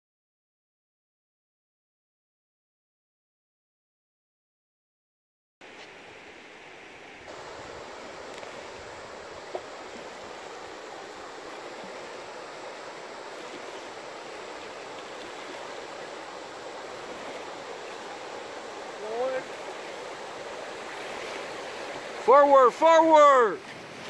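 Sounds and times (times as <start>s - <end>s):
river water rushing: 5.6s - 24.0s.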